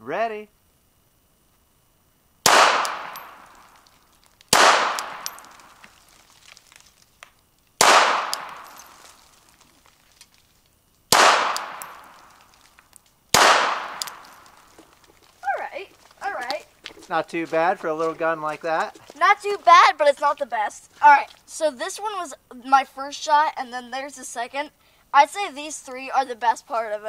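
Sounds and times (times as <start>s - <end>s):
pistol shots: 2.4s - 3.8s, 4.5s - 5.8s, 7.8s - 9.0s, 11.1s - 12.4s, 13.3s - 14.6s.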